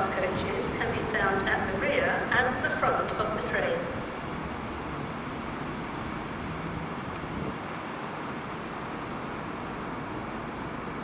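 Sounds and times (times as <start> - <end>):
steady rumbling background noise: 0.0 - 11.0.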